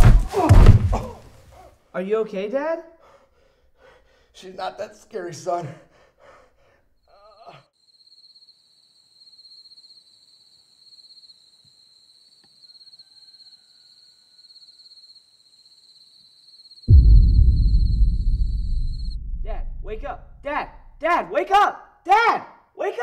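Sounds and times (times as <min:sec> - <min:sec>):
crickets chirping: 0:07.8 - 0:18.2.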